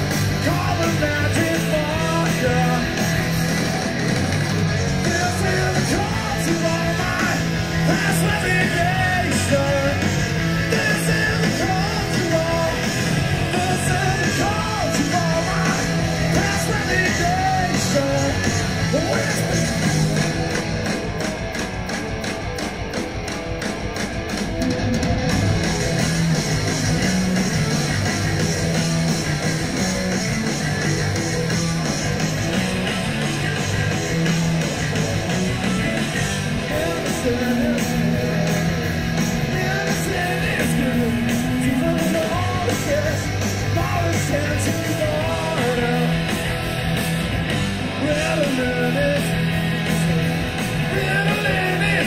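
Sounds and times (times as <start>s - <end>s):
male lead vocal: 0.0s - 3.2s, 4.7s - 19.8s, 35.7s - 46.4s, 47.8s - 52.0s
live rock band playing: 0.0s - 52.0s.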